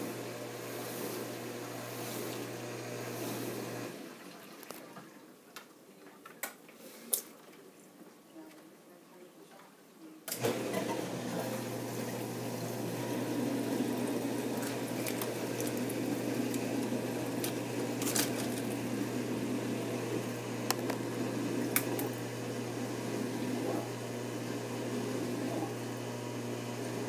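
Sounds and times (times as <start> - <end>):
water bubbling in bucket: 11.5 - 22.3.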